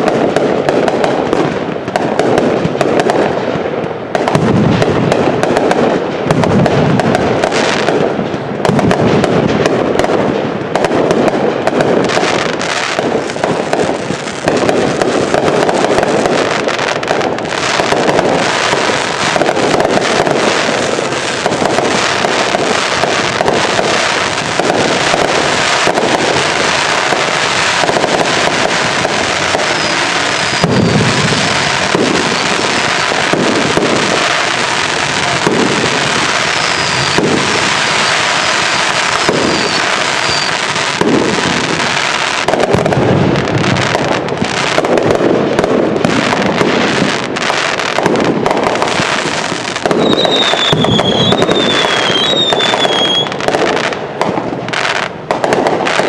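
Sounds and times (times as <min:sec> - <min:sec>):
deep firework booms: 0:00.0 - 0:56.0
fireworks crackling and popping: 0:00.0 - 0:56.0.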